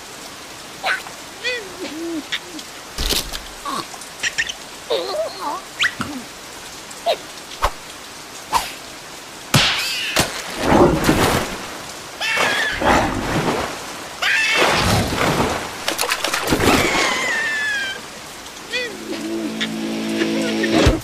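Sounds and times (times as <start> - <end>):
sharp water drips: 0.0 - 10.8, 11.4 - 19.2
heavy rain pouring: 0.0 - 21.0
squeaky wavering sounds: 18.7 - 21.0.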